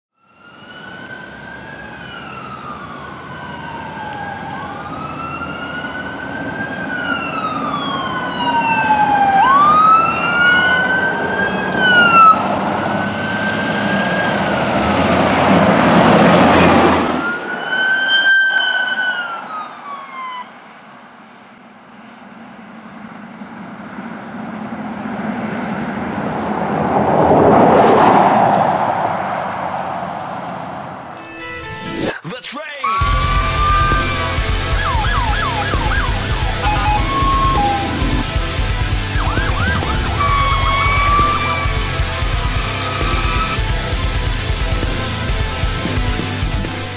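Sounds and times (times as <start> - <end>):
sirens wailing: 0.1 - 20.8, 32.8 - 46.9
engine and road noise rushing: 0.2 - 32.2, 32.9 - 46.9
rushing noise: 32.9 - 46.9.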